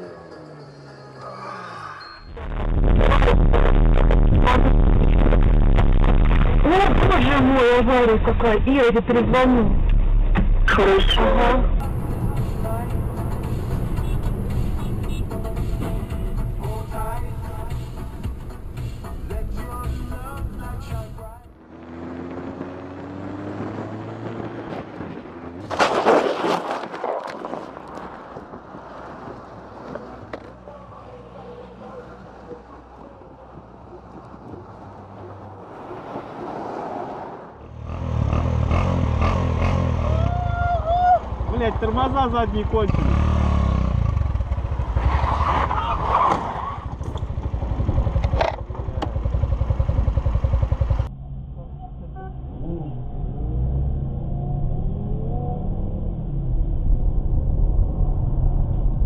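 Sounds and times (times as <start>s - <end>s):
motorcycle crashing into vehicle: 25.6s - 27.1s
motorcycle engine running: 46.8s - 52.9s.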